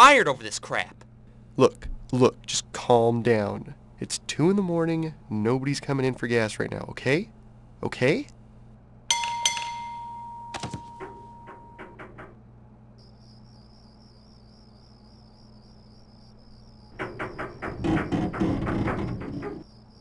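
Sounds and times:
crickets chirping: 12.9 - 20.0
loud knocking and rumbling: 17.0 - 19.6.

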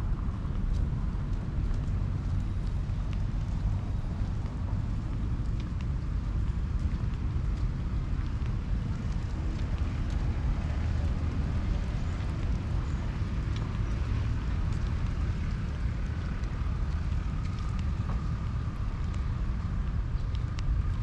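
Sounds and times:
wind buffeting the microphone: 0.0 - 21.0.

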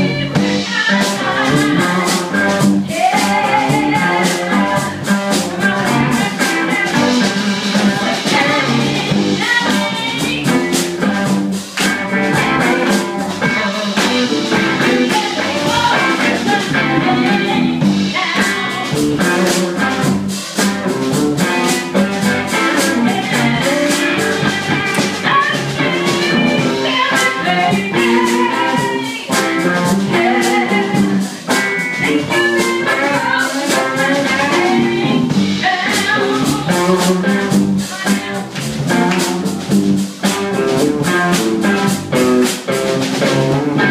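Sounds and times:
woman singing into microphone: 0.0 - 10.8, 12.4 - 20.0, 21.4 - 31.4, 32.0 - 39.0
drum kit steady beat: 0.0 - 43.9
guitar: 0.0 - 43.9.

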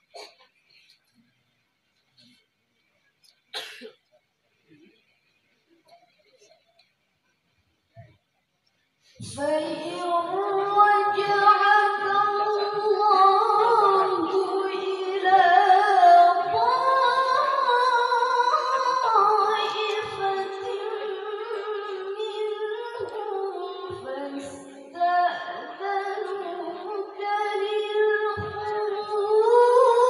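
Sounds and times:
woman reciting melodically: 9.2 - 30.0.

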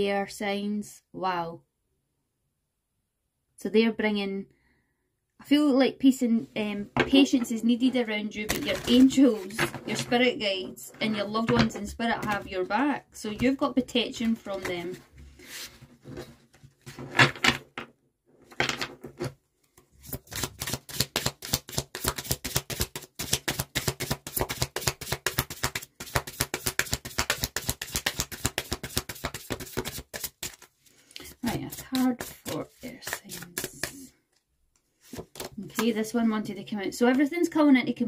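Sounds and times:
cards being shuffled: 8.5 - 10.0, 20.0 - 34.1, 35.0 - 36.0.

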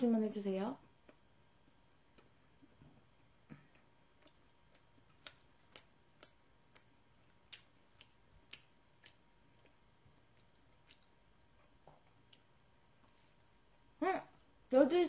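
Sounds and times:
mouth chewing bread clicks: 3.4 - 13.1.

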